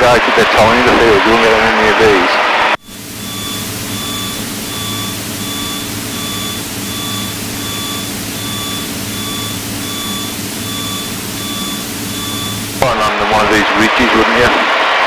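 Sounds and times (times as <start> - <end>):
short electronic beep: 2.8 - 12.8
piston engine drone in cabin: 2.8 - 13.0.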